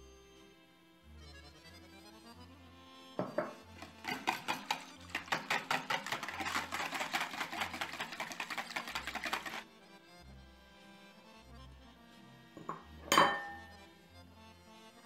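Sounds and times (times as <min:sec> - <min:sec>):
whisk clattering in bowl: 0:03.2 - 0:09.6.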